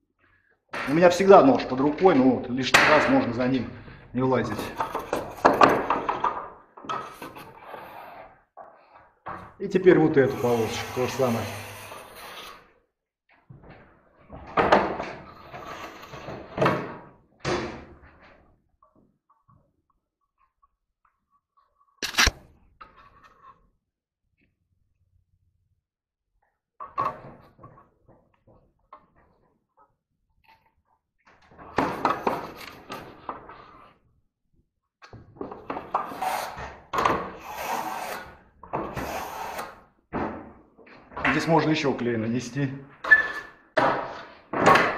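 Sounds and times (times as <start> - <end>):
trowel scraping wall canvas: 7.0 - 9.0, 9.8 - 12.8, 15.2 - 16.6, 35.8 - 40.0
trowel scraping fiberglass canvas: 10.1 - 12.8, 37.4 - 39.8.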